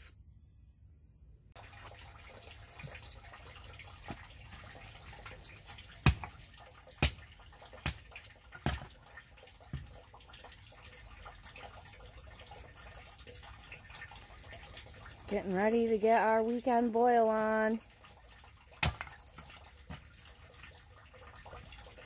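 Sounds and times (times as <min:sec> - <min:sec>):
trickle of running water: 0:01.6 - 0:22.0
axe chopping wood: 0:06.0 - 0:06.4, 0:07.0 - 0:09.0, 0:18.8 - 0:19.2.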